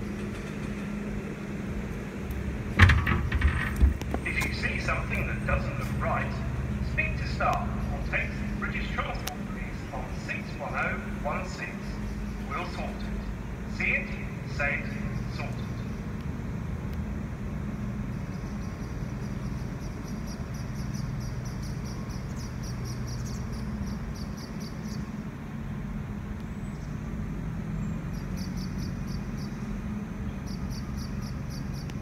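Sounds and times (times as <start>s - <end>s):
diesel engine humming: 0.0s - 32.0s
small birds chirping: 18.0s - 25.2s, 26.4s - 32.0s.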